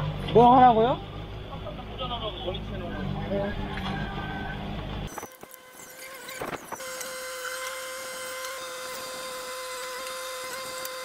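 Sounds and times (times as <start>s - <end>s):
mini excavator whining: 3.0s - 11.0s.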